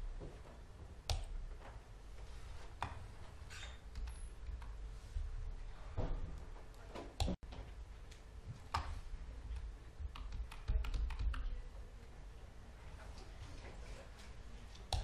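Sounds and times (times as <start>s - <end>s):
typing on computer keyboard: 10.0s - 11.5s.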